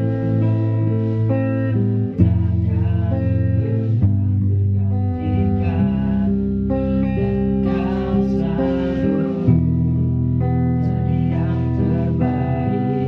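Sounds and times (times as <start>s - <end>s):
acoustic guitar chords: 0.0s - 13.0s
sustained bass notes: 0.0s - 13.0s
man singing into a microphone: 2.0s - 9.8s, 10.7s - 13.0s.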